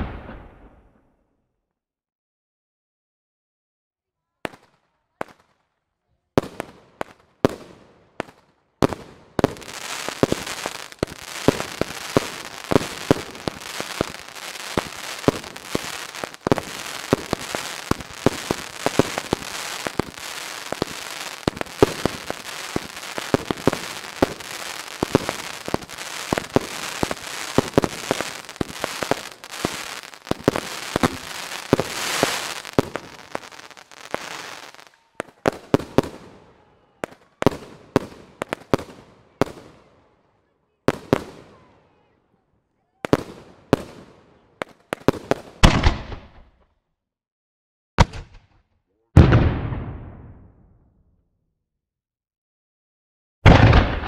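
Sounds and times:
fireworks bangs and crackle: 0.0s - 1.0s, 6.4s - 40.1s, 40.8s - 42.1s, 43.0s - 46.6s, 48.0s - 48.6s, 49.2s - 50.9s, 53.4s - 54.0s.

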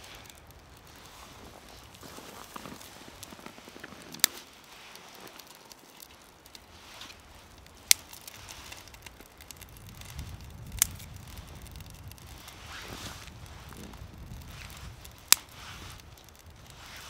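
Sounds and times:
sharp snaps of burning wood: 0.0s - 17.0s
twig fire crackling: 0.0s - 17.0s.

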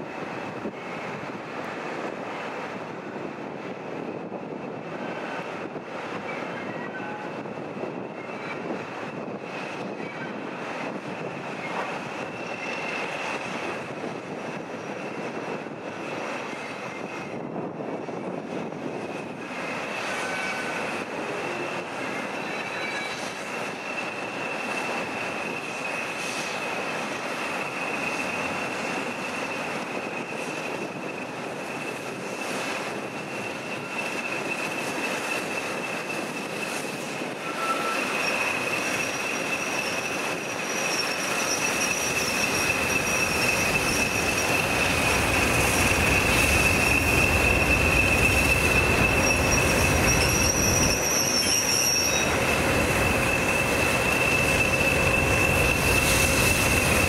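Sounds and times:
train wheels squealing: 0.0s - 2.6s, 3.2s - 57.0s
higher wheel squeal: 6.2s - 13.9s, 19.1s - 57.0s.

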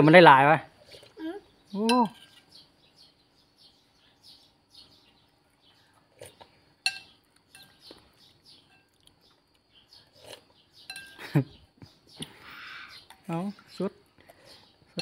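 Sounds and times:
small birds chirping: 0.0s - 15.0s
fork clinking on ceramic bowl: 6.8s - 7.8s, 10.8s - 11.2s.

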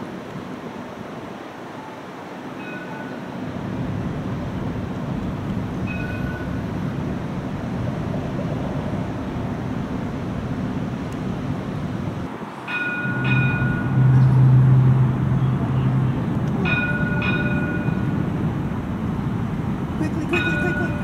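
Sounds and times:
streetcar rumbling: 0.0s - 21.0s.

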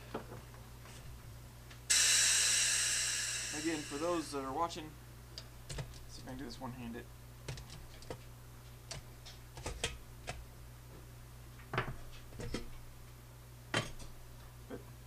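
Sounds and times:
steady low hum: 0.7s - 11.6s.

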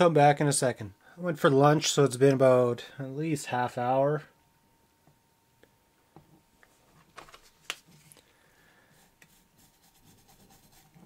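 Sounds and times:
toothbrush scrubbing: 9.3s - 11.0s.

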